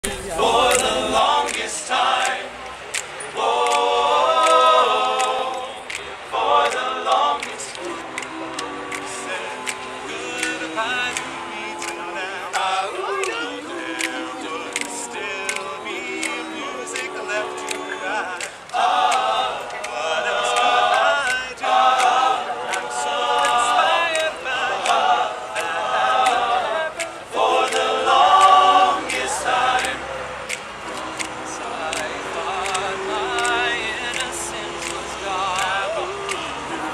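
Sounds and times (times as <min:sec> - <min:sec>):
male group singing in harmony: 0:00.0 - 0:36.9.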